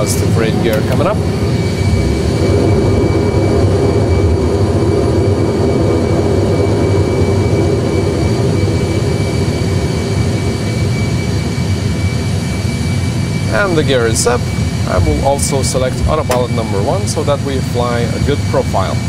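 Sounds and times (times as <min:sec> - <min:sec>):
jet engines rumbling and whining: 0:00.0 - 0:19.0.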